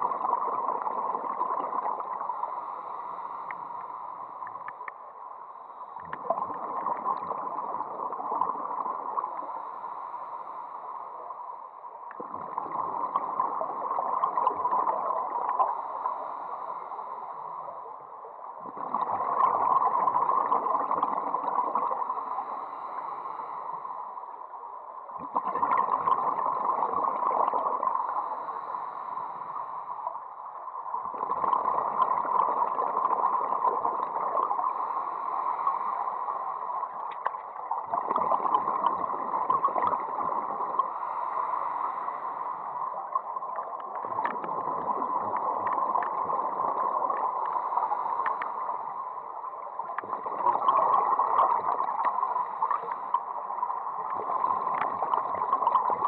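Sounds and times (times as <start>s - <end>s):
diver inhaling through regulator: 2.2s - 4.5s, 9.2s - 11.4s, 15.6s - 17.9s, 22.0s - 24.4s, 27.7s - 30.1s, 33.9s - 37.0s, 40.1s - 43.1s, 47.1s - 49.2s, 52.0s - 53.4s.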